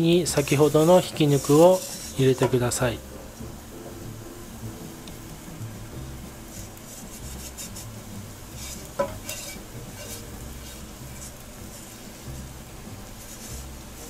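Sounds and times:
food sizzling in oil: 0.0s - 14.0s
spatula scraping frying pan: 0.1s - 2.8s, 6.4s - 14.0s
utensil clinking on pan: 9.0s - 10.2s.

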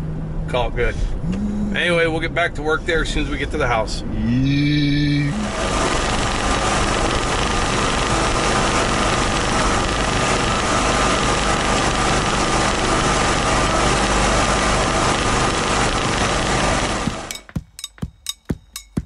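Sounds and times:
thin steady whine: 4.8s - 19.0s
mower engine running: 5.3s - 17.6s.

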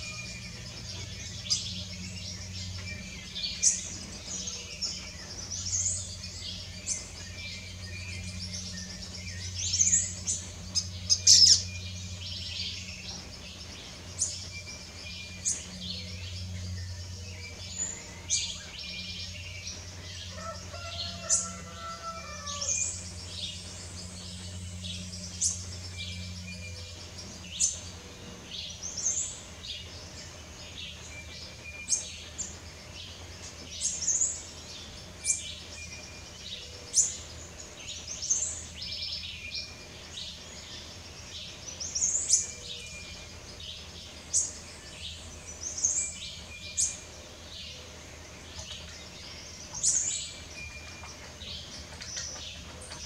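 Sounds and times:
small bird chirping: 0.0s - 20.0s
steady low hum: 0.0s - 53.0s.

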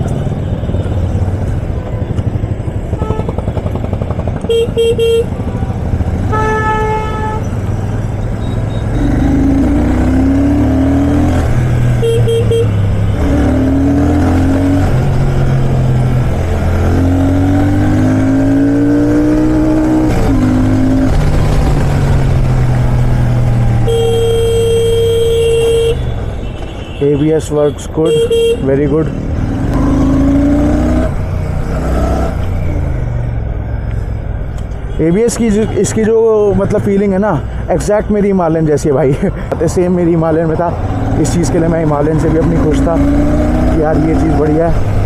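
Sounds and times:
motorcycle engine accelerating: 2.6s - 6.4s, 7.6s - 23.9s, 29.1s - 33.1s, 40.7s - 45.0s
vehicle horns beeping: 2.9s - 3.7s, 4.4s - 5.4s, 6.3s - 7.6s, 8.3s - 9.5s, 11.9s - 13.3s, 23.7s - 28.9s.

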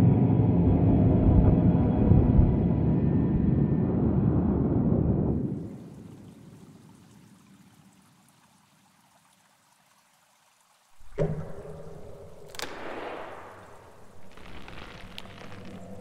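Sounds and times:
low hum: 0.0s - 5.7s, 11.0s - 16.0s
water pouring and trickling: 5.4s - 16.0s.

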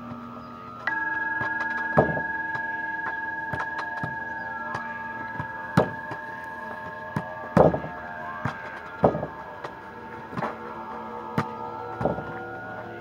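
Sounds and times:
ball slamming against wooden boards: 2.0s - 2.3s, 5.4s - 6.1s, 7.2s - 9.3s, 11.4s - 12.3s.

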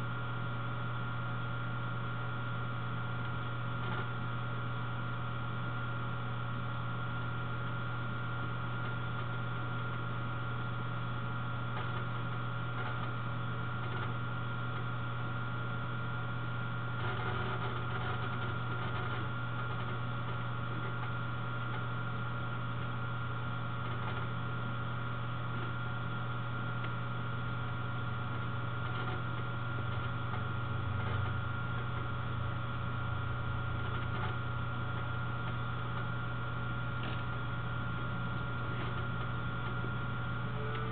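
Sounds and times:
low electrical hum: 0.0s - 40.9s
high-pitched whine: 27.6s - 40.9s.

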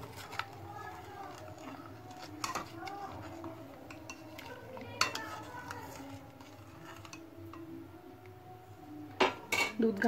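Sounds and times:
metal spoon scraping a pan: 0.0s - 7.9s
milk boiling: 0.0s - 10.0s.

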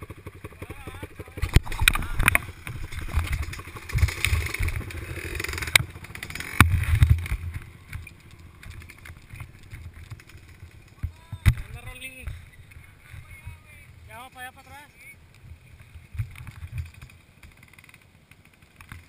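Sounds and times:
off-road vehicle engine revving: 0.0s - 9.7s
knocks and rattles from bumps: 0.4s - 13.6s.

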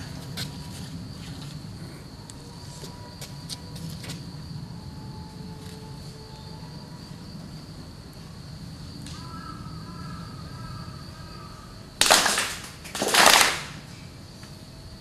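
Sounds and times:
group clapping in unison: 12.0s - 13.8s.

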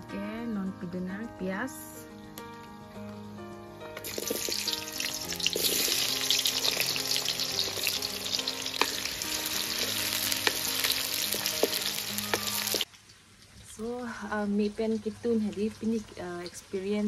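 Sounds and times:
soft background music: 0.0s - 12.9s, 13.7s - 17.0s
onions sizzling in hot oil: 3.9s - 17.0s
oil popping: 4.0s - 13.7s.

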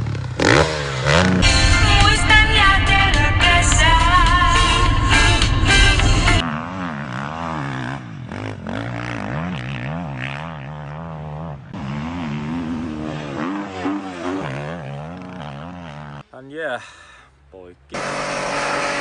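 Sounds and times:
motocross bike engine revving: 0.0s - 16.3s, 17.9s - 19.0s.

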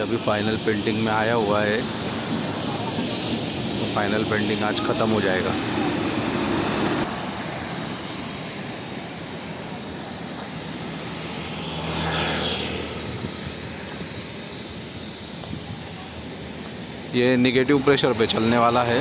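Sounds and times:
paint spray gun hissing: 0.0s - 19.0s.

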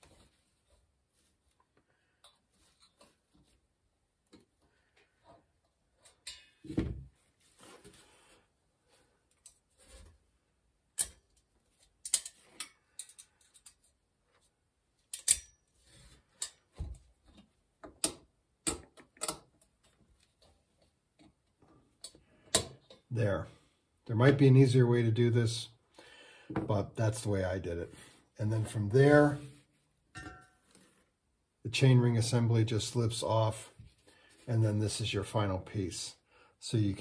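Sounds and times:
metal picks clicking and scraping: 12.0s - 13.9s, 15.0s - 15.6s.

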